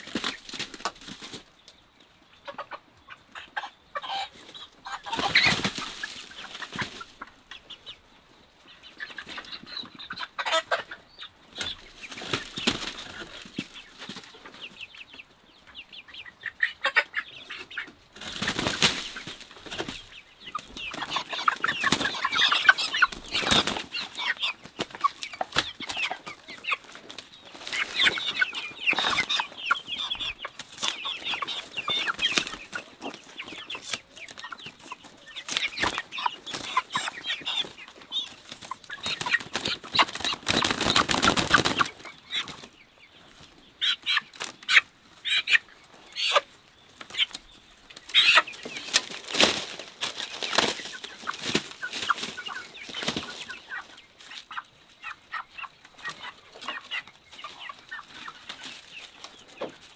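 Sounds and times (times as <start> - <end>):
hens clucking and squawking: 0.0 - 59.9
wings flapping: 5.1 - 7.0, 18.2 - 20.0, 20.9 - 24.0, 38.5 - 42.7, 48.8 - 53.4.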